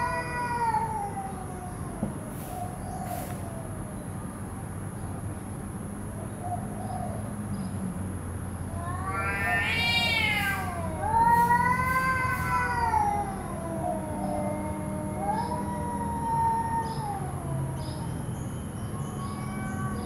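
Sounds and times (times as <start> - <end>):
cats yowling: 0.0 - 3.8, 8.7 - 20.0.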